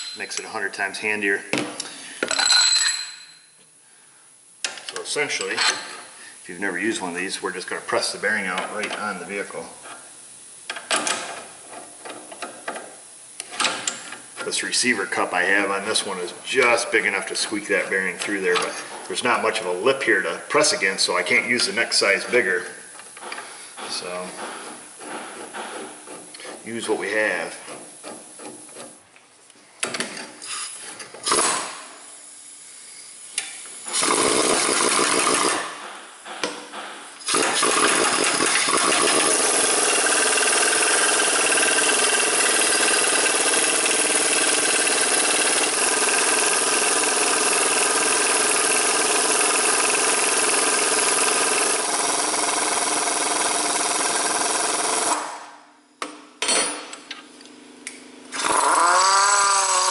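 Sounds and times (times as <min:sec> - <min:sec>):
air impact wrench hammering: 0:00.0 - 0:00.5, 0:29.8 - 0:31.9, 0:33.4 - 0:55.4.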